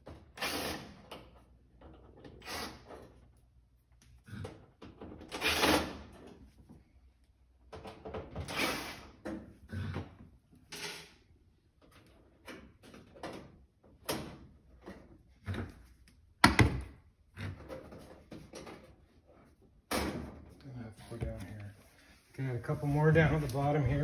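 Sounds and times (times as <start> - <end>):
cordless drill bursts: 0.4 - 1.0.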